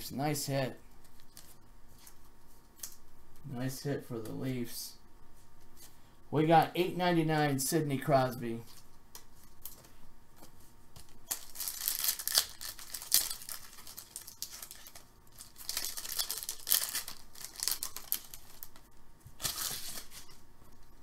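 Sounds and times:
wrapper tearing and crinkling: 0:11.3 - 0:18.8, 0:19.4 - 0:20.3.

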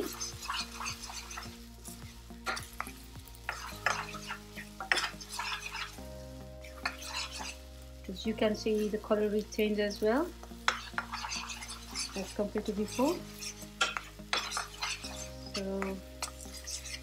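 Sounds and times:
spatula scraping a pan: 0:00.0 - 0:07.8, 0:08.5 - 0:17.0
soft sizzle: 0:00.0 - 0:17.0.

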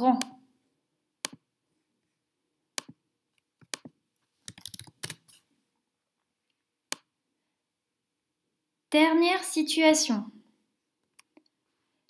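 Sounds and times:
mouse and keyboard clicking: 0:03.6 - 0:05.4.

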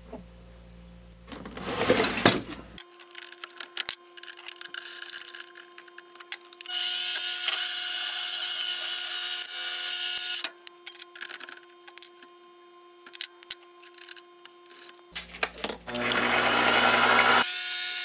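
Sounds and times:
lathe motor whirring: 0:15.9 - 0:17.4.

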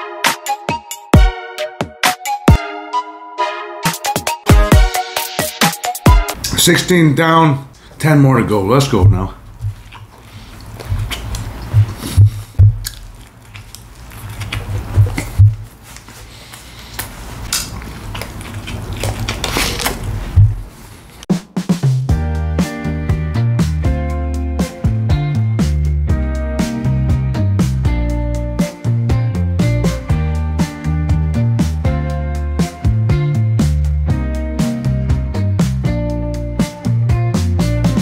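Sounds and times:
person chewing: 0:09.4 - 0:20.6
heavy kick drums: 0:11.8 - 0:12.8, 0:15.0 - 0:15.6, 0:20.3 - 0:20.7
packaging crinkling: 0:12.9 - 0:20.4
drum hits: 0:15.0 - 0:15.6.

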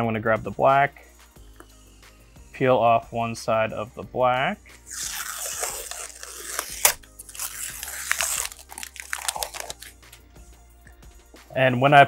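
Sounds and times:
paper peeling off plastic: 0:05.0 - 0:10.0.

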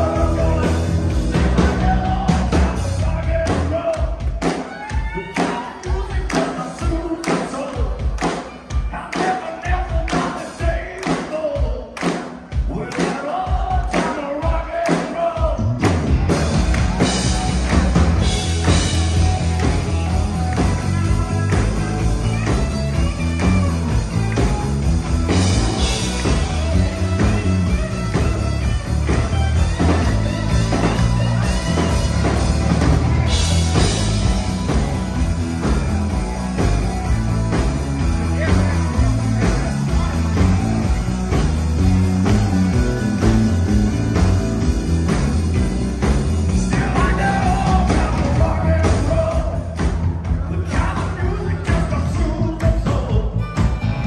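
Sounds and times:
bass guitar: 0:00.0 - 0:05.2, 0:15.2 - 0:54.0
electric guitar: 0:00.0 - 0:09.2, 0:15.6 - 0:54.0
man singing: 0:00.0 - 0:15.9, 0:38.0 - 0:41.0, 0:46.5 - 0:53.8
drums: 0:00.0 - 0:54.0.

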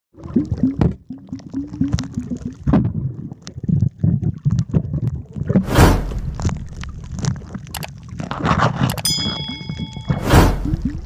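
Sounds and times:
low gurgling pops: 0:00.2 - 0:08.8
underwater gurgling and knocking: 0:00.2 - 0:11.0.

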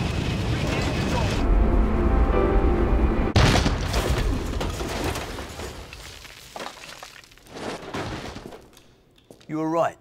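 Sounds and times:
loud crash: 0:03.3 - 0:05.8
debris clattering: 0:03.4 - 0:09.4.

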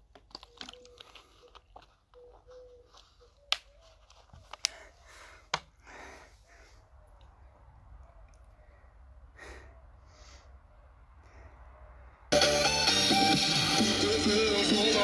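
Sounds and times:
sharp plastic cracks: 0:00.0 - 0:01.8
plastic bottle crinkling: 0:00.0 - 0:04.9.

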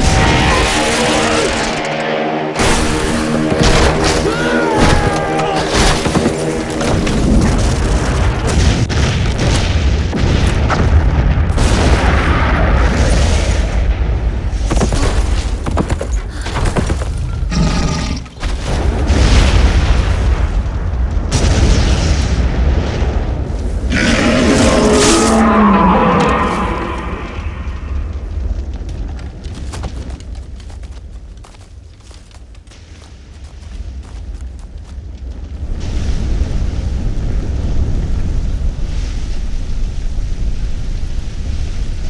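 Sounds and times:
film music: 0:00.0 - 0:08.6
people shouting: 0:04.1 - 0:06.0
horses galloping: 0:28.7 - 0:32.7.

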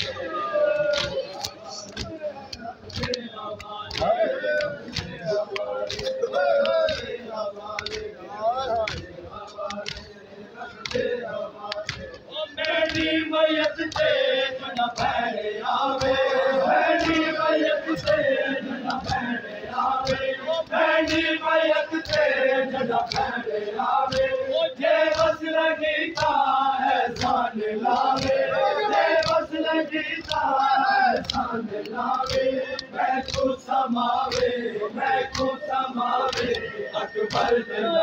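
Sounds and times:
crowd of men chanting: 0:00.0 - 0:38.0
chest-beating slaps: 0:00.9 - 0:06.2, 0:37.2 - 0:37.6.

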